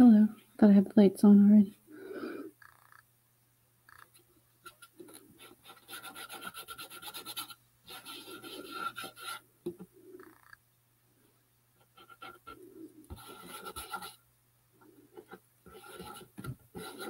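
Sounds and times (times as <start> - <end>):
paintbrush scrubbing cardboard: 4.7 - 9.4, 11.8 - 14.2, 15.1 - 17.0.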